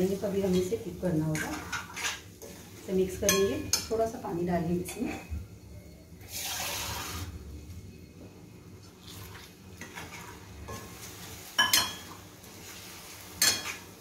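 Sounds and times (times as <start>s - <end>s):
ladle stirring and scraping pan: 0.0s - 3.9s, 8.9s - 14.0s
water sizzling in hot pan: 0.0s - 3.9s, 6.2s - 7.4s, 8.9s - 14.0s
metal clink against pan: 11.6s - 12.1s, 13.4s - 13.8s.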